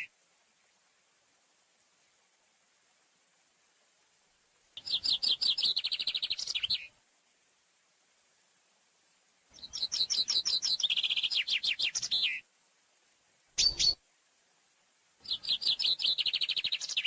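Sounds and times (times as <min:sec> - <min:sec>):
chaffinch singing: 0:04.8 - 0:06.9, 0:09.5 - 0:12.4, 0:13.6 - 0:14.0, 0:15.2 - 0:17.0.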